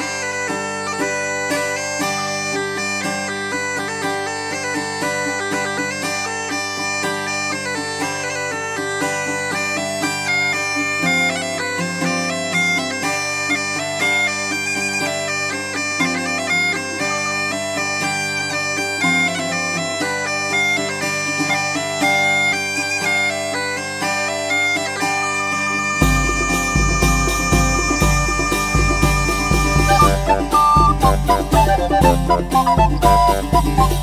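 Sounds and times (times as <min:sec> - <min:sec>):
instrumental melody over drone: 0:09.5 - 0:34.0.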